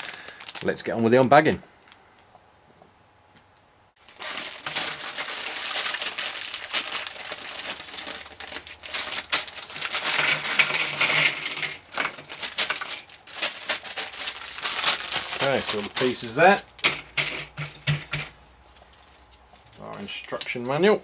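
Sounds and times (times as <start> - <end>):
plastic bag crinkling and tearing: 0.0 - 1.0, 4.0 - 16.8
plastic pieces clattering on table: 4.1 - 18.3.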